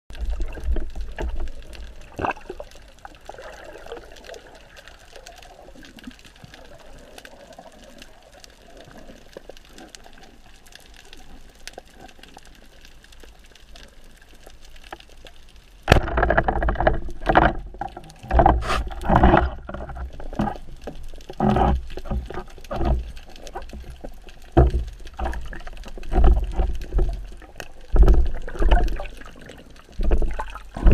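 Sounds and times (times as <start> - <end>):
faint crackling clicks underwater: 0.1 - 30.9
sharp crack: 15.8 - 17.5
water rushing over camera housing: 15.8 - 30.9
handling noise: 15.9 - 20.7
water turbulence bursts: 18.3 - 19.5.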